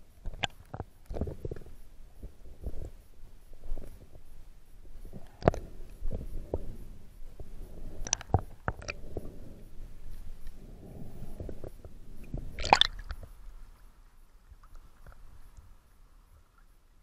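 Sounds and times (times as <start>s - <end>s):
faint water sounds: 0.0s - 17.0s
muffled underwater knocks and clicks: 0.2s - 3.0s, 7.4s - 9.3s
low underwater rumble: 1.2s - 16.0s
water splash: 12.6s - 13.2s.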